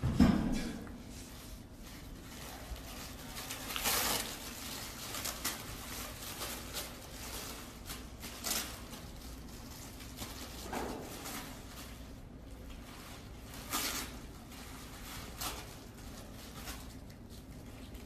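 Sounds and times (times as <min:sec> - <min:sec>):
paper tissue rustling and crinkling: 0:01.0 - 0:18.0.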